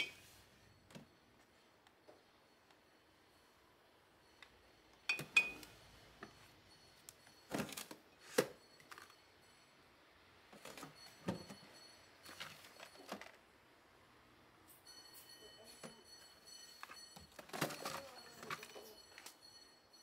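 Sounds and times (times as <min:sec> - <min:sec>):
bottles clinking: 0:05.1 - 0:05.7, 0:15.1 - 0:19.4
plastic baskets knocking and scraping: 0:16.8 - 0:19.3.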